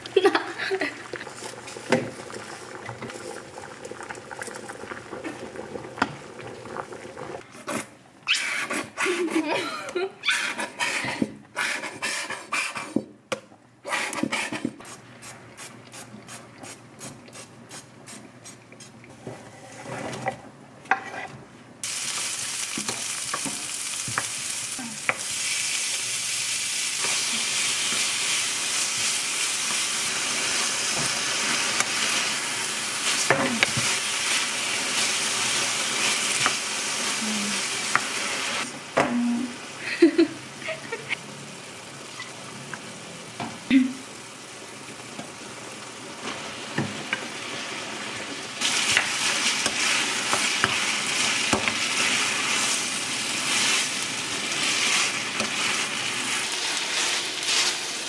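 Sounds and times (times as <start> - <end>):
food sizzling in frying pan: 0.0 - 7.4, 21.8 - 58.0.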